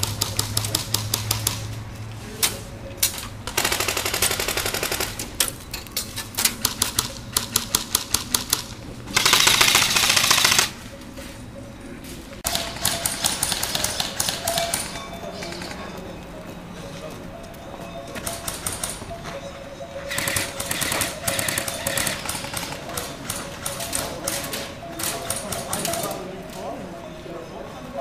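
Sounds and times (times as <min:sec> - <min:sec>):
airsoft rifles firing: 0:00.0 - 0:01.7, 0:03.1 - 0:05.4, 0:06.4 - 0:10.8, 0:12.5 - 0:15.8, 0:20.1 - 0:26.2.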